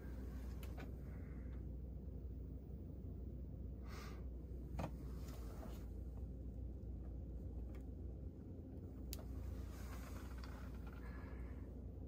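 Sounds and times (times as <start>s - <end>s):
low cockpit hum: 0.0s - 12.0s
short rustle: 9.3s - 11.2s.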